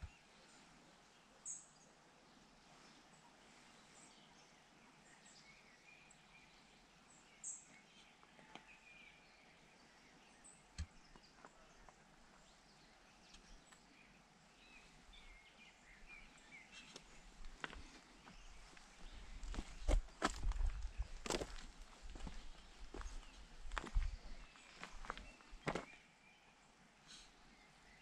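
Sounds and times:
faint bird chirps: 0:00.0 - 0:21.6.

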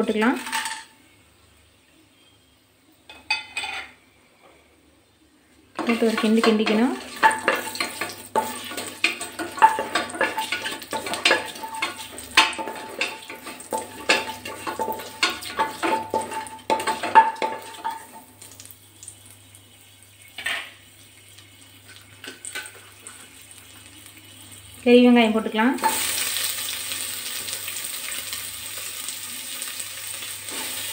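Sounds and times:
spices in hot oil: 0:05.7 - 0:30.9
wooden spoon scraping a pot: 0:05.8 - 0:18.0.

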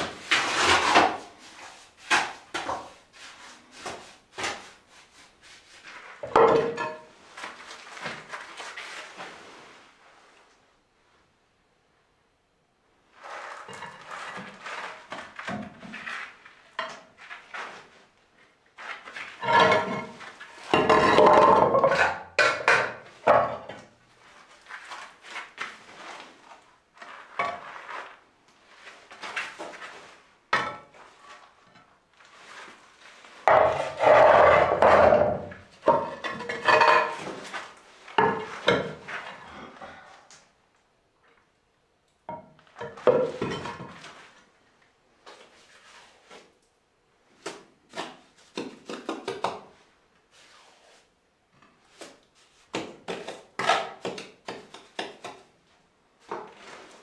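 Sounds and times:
stone scraping across floor: 0:00.0 - 0:10.0, 0:13.1 - 0:18.1, 0:18.8 - 0:40.0, 0:56.2 - 0:57.0.

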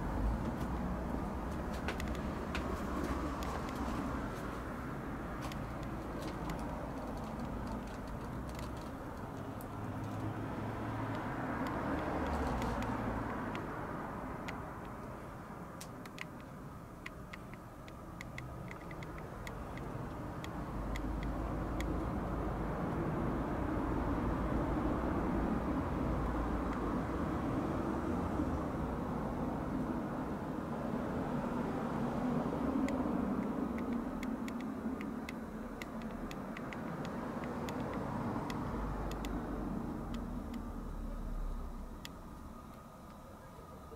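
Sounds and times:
light ticks: 0:01.5 - 0:04.5, 0:05.4 - 0:10.3, 0:11.1 - 0:13.7, 0:14.4 - 0:15.2, 0:15.8 - 0:22.0, 0:32.8 - 0:39.4, 0:40.1 - 0:40.7
small clicks: 0:05.4 - 0:10.4, 0:15.8 - 0:22.0.

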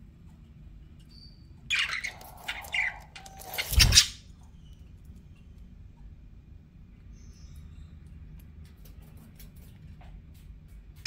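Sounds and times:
budgerigars chirping and squawking: 0:01.7 - 0:04.3.

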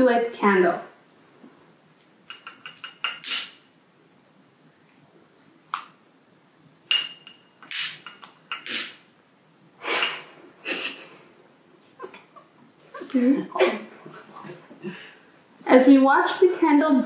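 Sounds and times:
short gas hiss: 0:03.2 - 0:03.7, 0:07.7 - 0:09.1, 0:09.8 - 0:10.5.

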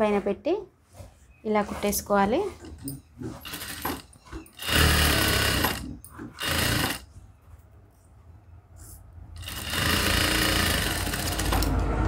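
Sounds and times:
sewing machine stitching: 0:03.4 - 0:07.1, 0:09.4 - 0:12.0.

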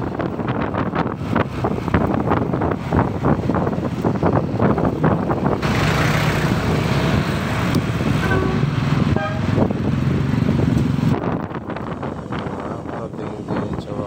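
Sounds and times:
scooter engine hum: 0:00.0 - 0:13.5
wind buffeting microphone: 0:00.0 - 0:14.0
short horn toot: 0:08.2 - 0:09.6.

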